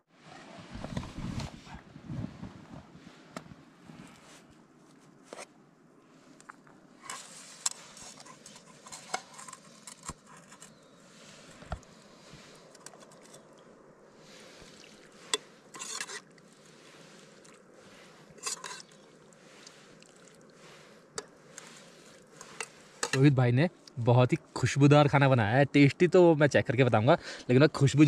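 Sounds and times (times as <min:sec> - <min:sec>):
spoons and dishes clinking: 0:18.4 - 0:19.0.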